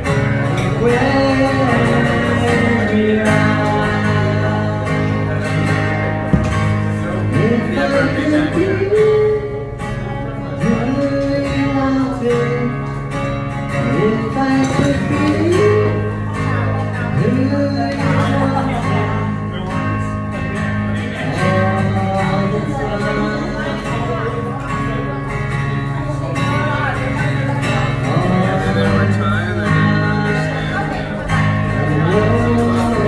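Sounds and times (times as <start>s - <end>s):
strummed acoustic guitar: 0.0s - 33.0s
person singing: 0.5s - 5.9s, 7.0s - 10.0s, 13.8s - 19.5s, 26.6s - 33.0s.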